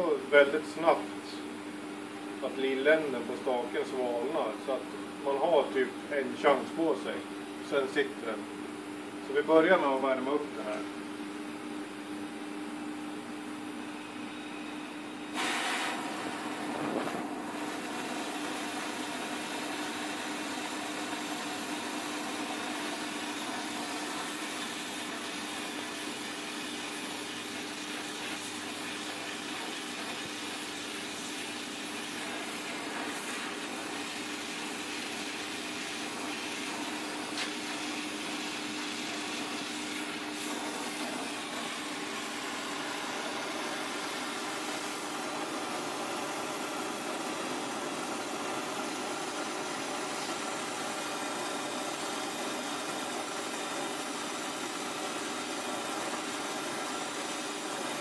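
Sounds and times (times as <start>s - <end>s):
gas torch flame hissing: 15.2s - 58.0s.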